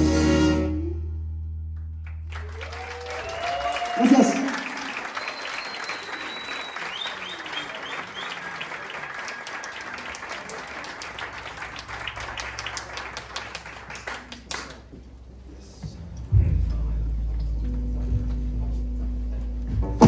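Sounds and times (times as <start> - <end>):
crowd applauding: 2.0 - 15.1.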